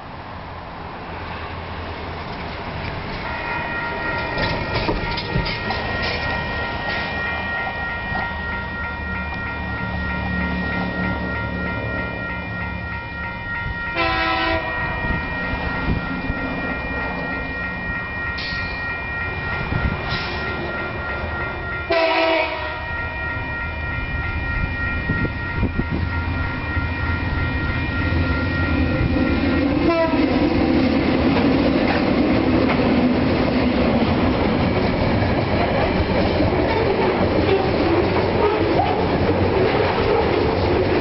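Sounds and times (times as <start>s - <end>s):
diesel locomotive engines whining: 0.0s - 41.0s
wagon wheels on rails: 2.0s - 14.1s, 26.7s - 41.0s
train horn blast: 14.0s - 15.0s, 21.9s - 22.9s, 29.8s - 30.2s.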